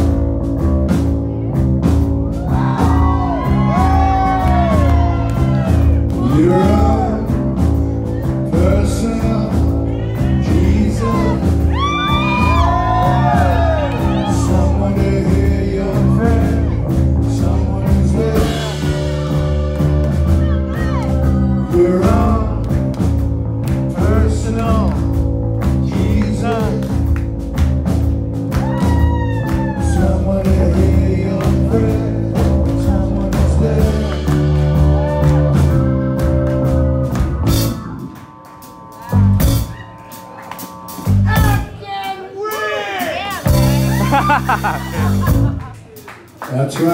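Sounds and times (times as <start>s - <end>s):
live rock band playing: 0.0s - 46.9s
amplified lead vocal singing: 6.1s - 22.8s, 25.8s - 26.9s, 29.7s - 35.2s.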